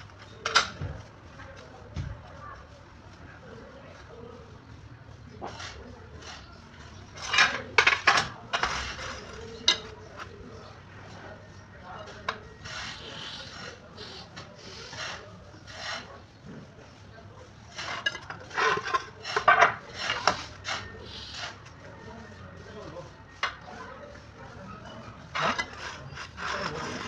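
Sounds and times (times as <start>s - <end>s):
ceramic tiles scraping on concrete: 5.4s - 10.3s, 12.0s - 16.3s, 17.7s - 21.8s, 25.3s - 27.0s.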